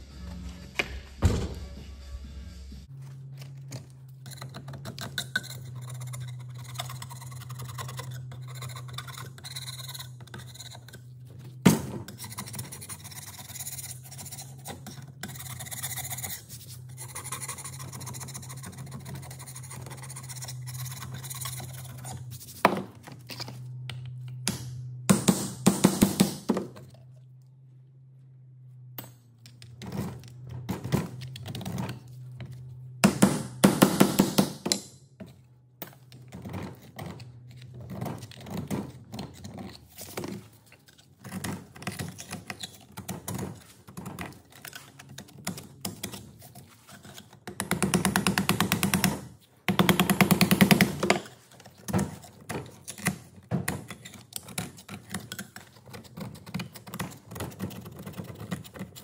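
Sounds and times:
metal scraper scraping metal: 0:04.2 - 0:22.6.

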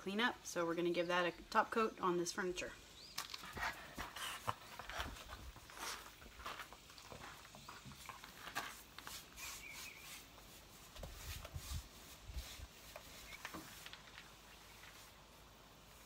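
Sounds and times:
light rustles and knocks: 0:12.9 - 0:15.1.

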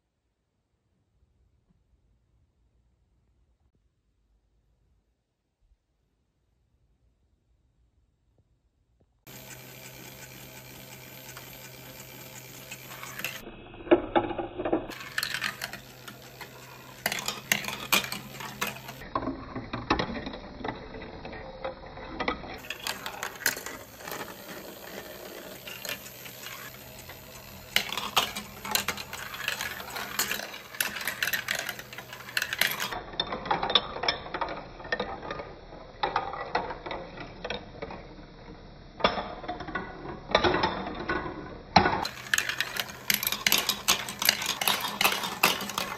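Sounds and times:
motorized elevator hum: 0:09.3 - 0:33.0
plastic balls rolling and clattering: 0:09.3 - 0:45.9.

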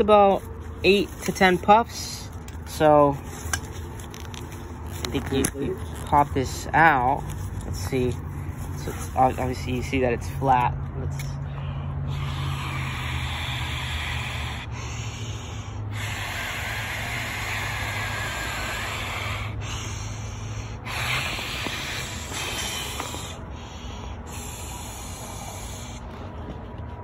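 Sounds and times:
person blowing into a valve: 0:12.1 - 0:23.5.

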